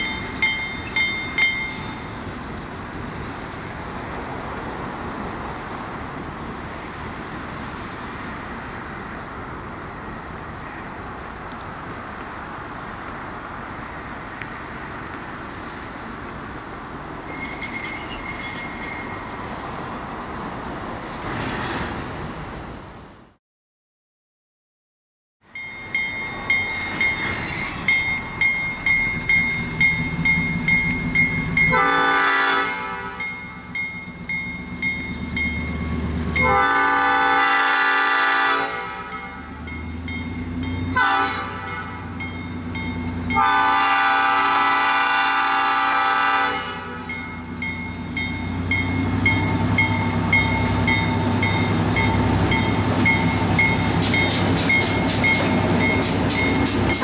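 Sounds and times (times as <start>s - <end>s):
diesel engine rumble: 0.0s - 17.3s
locomotive horn blasts: 31.7s - 33.3s, 36.4s - 39.2s, 40.9s - 42.1s, 43.3s - 47.1s
bell ringing steadily: 47.1s - 56.7s.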